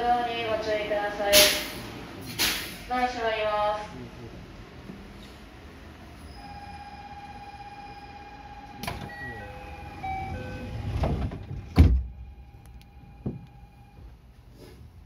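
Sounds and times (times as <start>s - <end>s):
train doors closing: 0.0s - 3.1s, 4.8s - 13.6s
short beeps: 6.2s - 10.9s
door thump: 11.0s - 12.1s.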